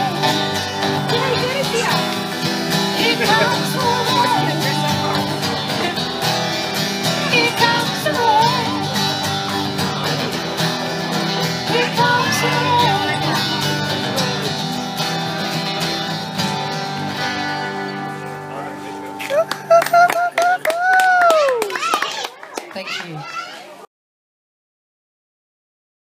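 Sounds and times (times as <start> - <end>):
plucked double bass: 0.0 - 18.3
acoustic guitars: 0.0 - 21.6.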